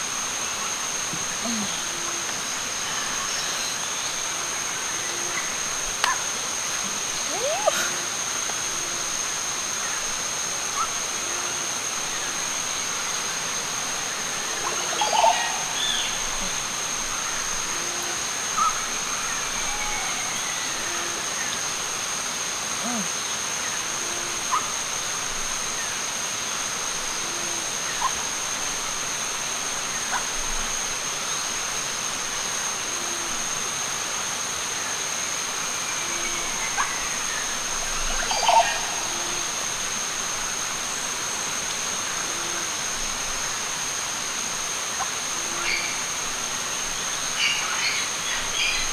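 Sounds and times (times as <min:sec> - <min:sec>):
running water: 0:00.0 - 0:19.6
high insect drone: 0:00.0 - 0:48.9.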